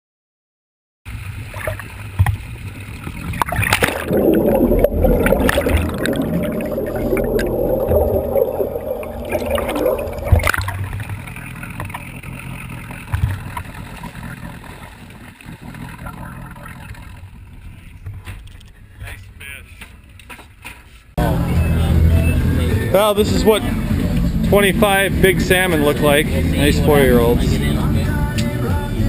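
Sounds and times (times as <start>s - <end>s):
water rushing and gurgling: 1.1s - 18.9s, 23.0s - 29.0s
boat motor rumbling: 1.1s - 20.2s, 21.2s - 29.0s
camera splashing into water: 3.3s - 17.3s.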